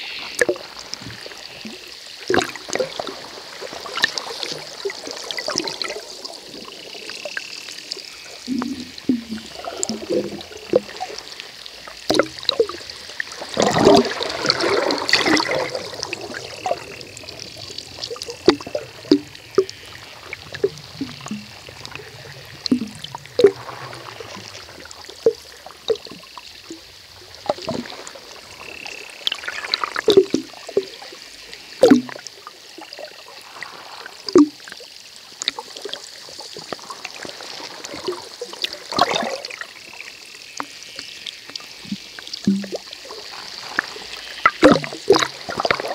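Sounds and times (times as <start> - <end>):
underwater rushing: 0.0 - 45.9
underwater clicks and pops: 12.1 - 12.6, 18.1 - 19.8, 20.6 - 21.5, 31.8 - 32.2, 41.5 - 42.8.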